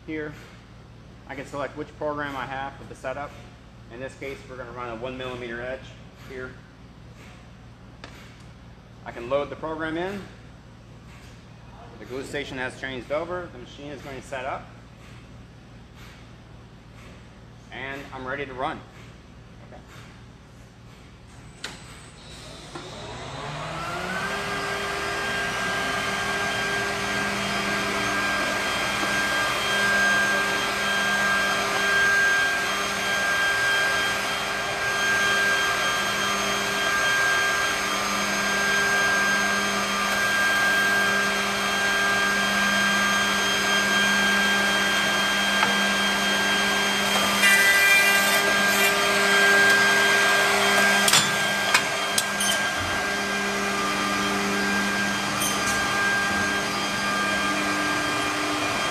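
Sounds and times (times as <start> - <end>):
machine motors whining: 21.5 - 58.9
rough machining noise: 22.1 - 58.9.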